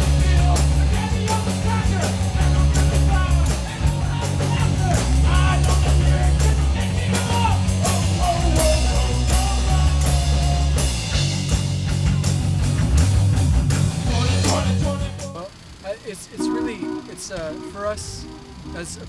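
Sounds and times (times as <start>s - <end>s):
drum kit: 0.0s - 15.5s, 16.4s - 18.4s
electric guitar: 0.0s - 15.6s, 16.4s - 19.0s
bass guitar: 0.0s - 15.7s, 16.4s - 19.0s
person singing: 16.4s - 19.0s.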